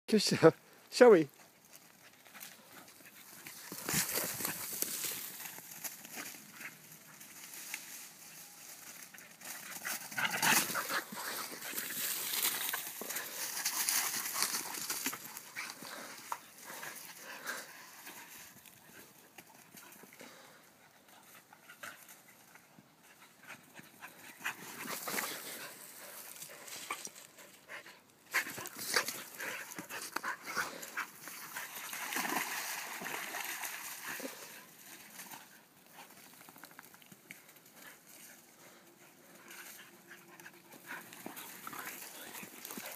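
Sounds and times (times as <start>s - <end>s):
scuffling: 1.6s - 17.2s
dogs playing rough: 1.8s - 7.5s, 8.9s - 42.9s.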